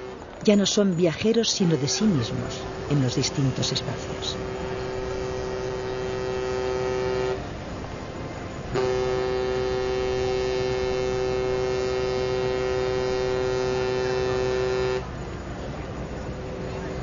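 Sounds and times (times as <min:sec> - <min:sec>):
ship horn blast: 0:00.0 - 0:00.8, 0:01.4 - 0:17.0
low harbour background: 0:00.0 - 0:17.0.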